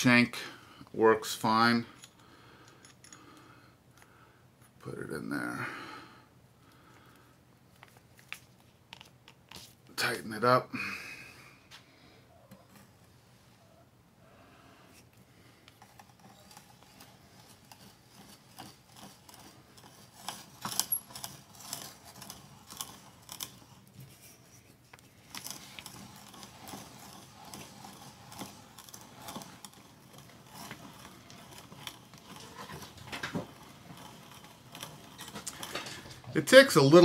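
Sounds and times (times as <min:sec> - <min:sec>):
hand drill scraping and clicking: 0:01.3 - 0:03.4, 0:14.9 - 0:37.0.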